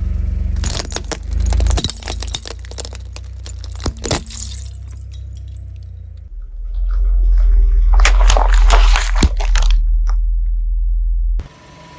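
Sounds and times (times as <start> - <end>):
car engine rumble: 0.0 - 11.5
plastic cubes cracking under tyre: 0.6 - 5.1, 7.9 - 10.2.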